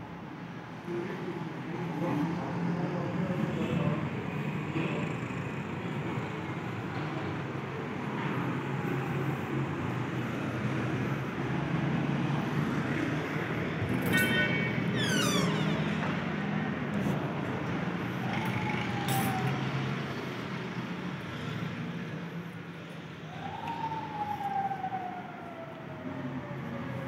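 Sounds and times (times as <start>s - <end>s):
road traffic: 0.0s - 27.0s
car horn toot: 14.0s - 14.8s.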